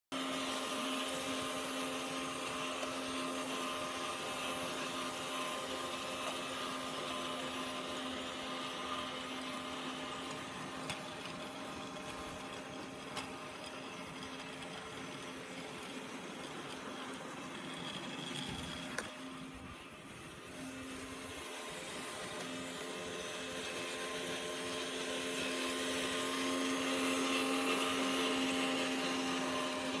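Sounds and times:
toy train motor whirring: 0.2 - 30.0
wheels rattling over rails: 8.8 - 22.7.

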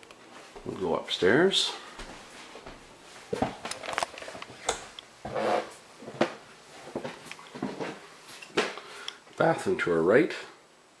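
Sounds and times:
footsteps on wooden stairs: 6.0 - 8.8.

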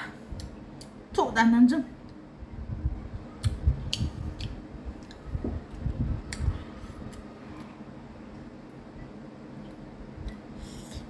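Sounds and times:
person chewing wetly: 3.4 - 7.7
soft low thuds: 5.3 - 6.6.

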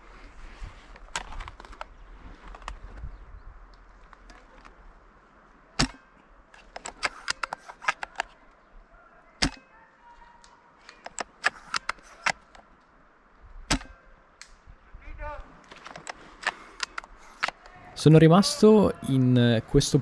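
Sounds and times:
airsoft rifle shots: 5.8 - 6.0, 9.4 - 9.7, 13.7 - 14.0.

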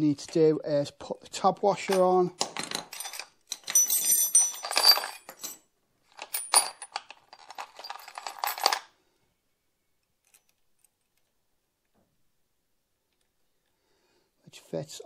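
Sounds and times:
metal washer clinking: 1.8 - 5.6, 6.2 - 8.8.

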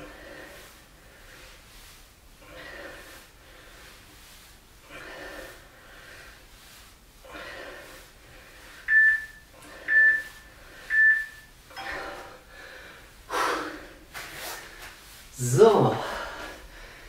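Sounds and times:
man breathing hard: 0.0 - 8.9, 11.8 - 15.2, 16.0 - 17.0
short high timer beeps: 8.9 - 10.3, 10.9 - 12.3.

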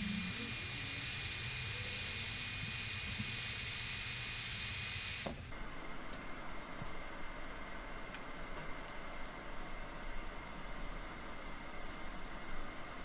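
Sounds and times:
hot air gun hissing: 0.0 - 5.5.

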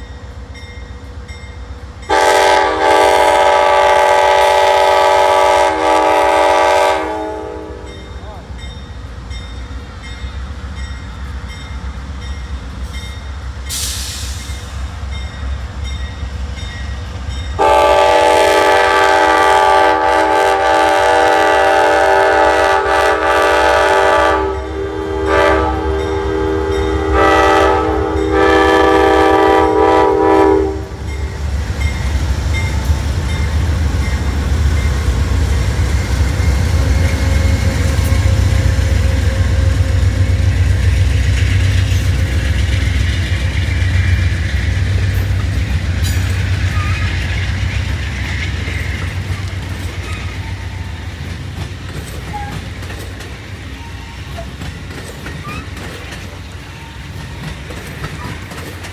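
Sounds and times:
train rumbling past: 0.0 - 58.9
train air horn blasts: 2.1 - 8.1, 17.6 - 31.2.

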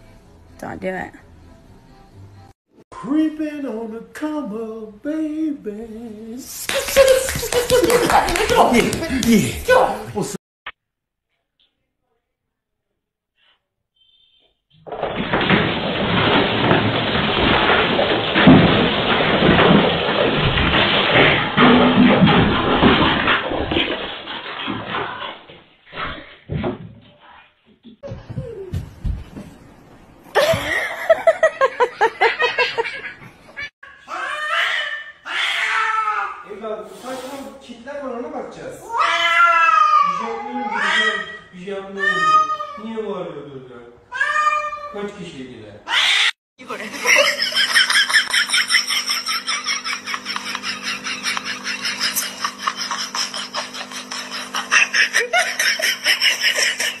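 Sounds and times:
person laughing: 6.7 - 9.8, 30.4 - 33.2, 46.8 - 57.0
cat yowling: 34.1 - 36.4, 38.9 - 42.8, 44.1 - 45.0, 45.9 - 46.3.

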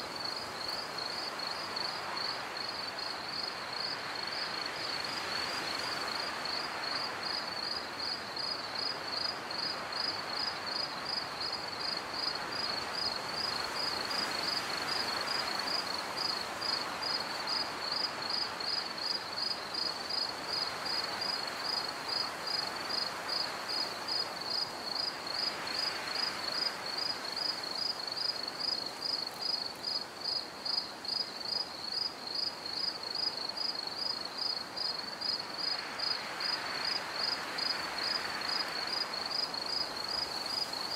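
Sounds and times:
cricket chirping: 0.0 - 40.9.

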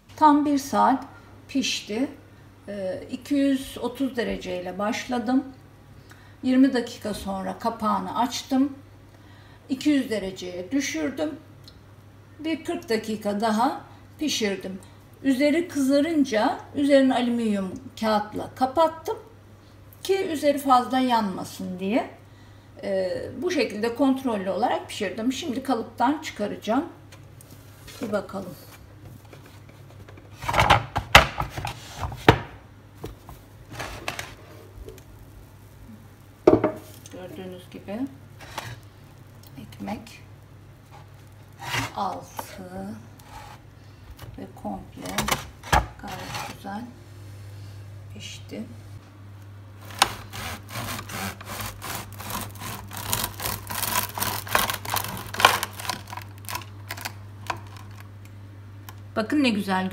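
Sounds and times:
bread knife sawing through crust: 49.8 - 55.8.

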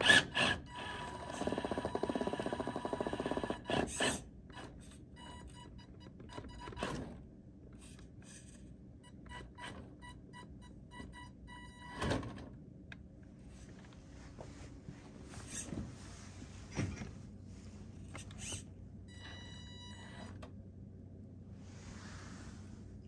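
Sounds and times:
electric motor whining in pulses: 0.0 - 4.2.

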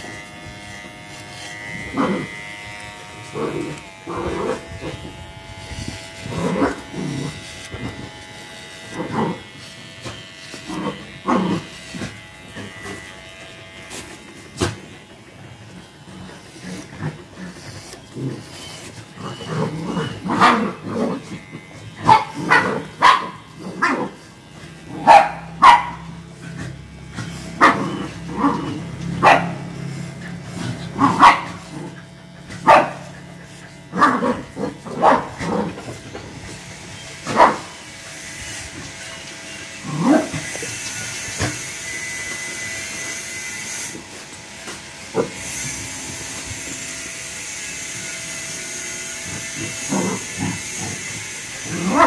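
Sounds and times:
electric hair clippers buzzing: 0.0 - 52.0
dogs barking: 19.2 - 21.4, 22.0 - 24.2, 24.8 - 36.0, 37.2 - 37.8, 51.6 - 52.0.

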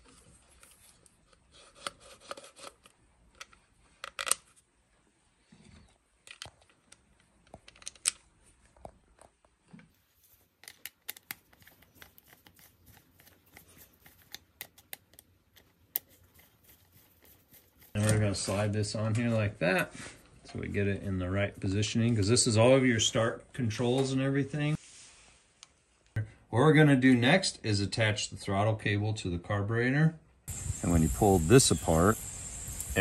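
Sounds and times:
small plastic clicks and rustles: 0.0 - 4.6, 5.8 - 18.2.

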